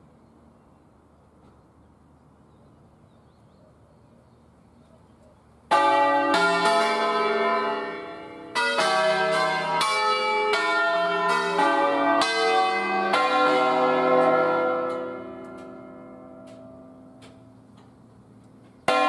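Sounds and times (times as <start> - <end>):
church bells ringing: 5.7 - 17.8, 18.6 - 19.0.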